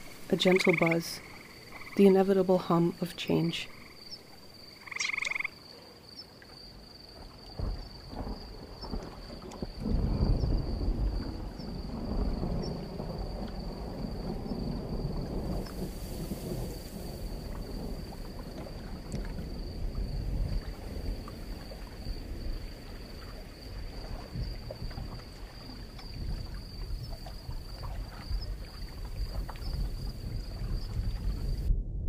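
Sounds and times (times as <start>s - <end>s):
deep uneven low rumble: 26.2s - 32.0s.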